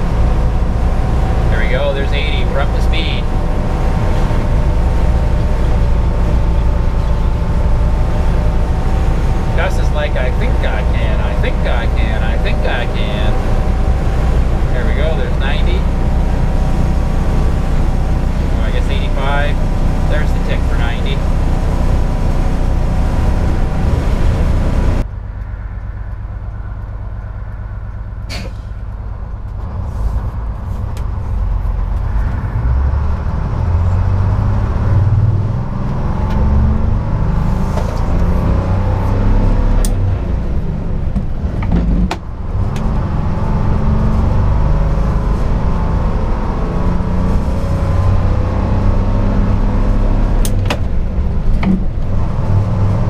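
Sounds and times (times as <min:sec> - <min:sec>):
bus diesel engine running: 0:00.0 - 0:53.0
road noise: 0:00.0 - 0:53.0.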